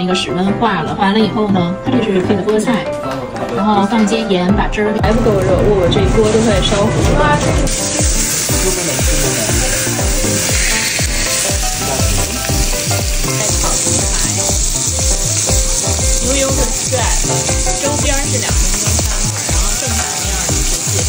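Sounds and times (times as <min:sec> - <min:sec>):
background music with steady beat: 0:00.0 - 0:21.0
steaks sizzling in oil: 0:06.1 - 0:21.0.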